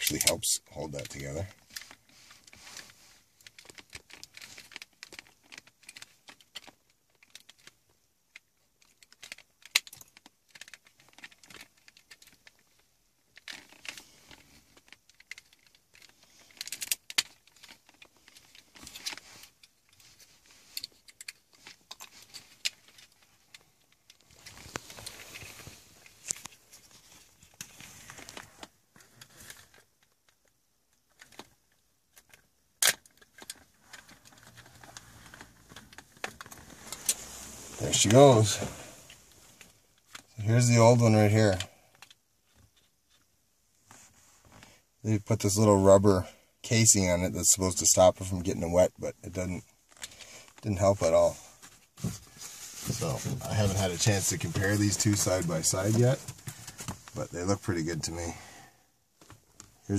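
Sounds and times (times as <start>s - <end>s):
scraping and rustling: 13.4s - 29.9s, 33.2s - 40.4s, 49.9s - 58.5s.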